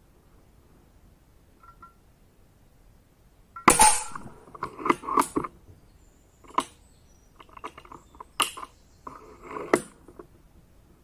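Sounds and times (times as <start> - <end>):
air rifle bolt clicks and clacks: 3.6 - 5.5.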